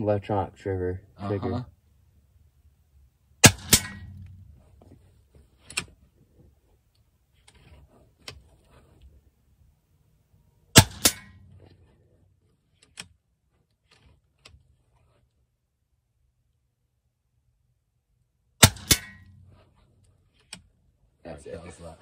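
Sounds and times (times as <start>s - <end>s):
air rifle shot crack: 3.4s - 4.5s, 10.7s - 11.5s, 18.6s - 19.3s.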